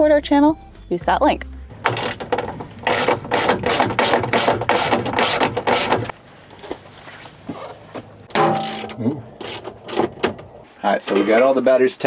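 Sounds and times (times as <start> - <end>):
ratchet wrench rattling: 1.8 - 6.1, 8.4 - 10.4.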